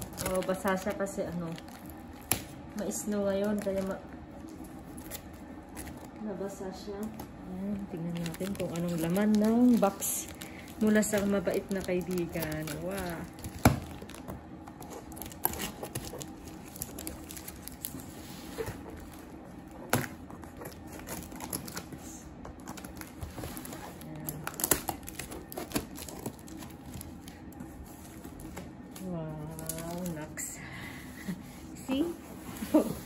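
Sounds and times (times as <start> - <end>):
packing tape tearing: 0.0 - 2.6, 8.0 - 22.0, 22.6 - 30.2.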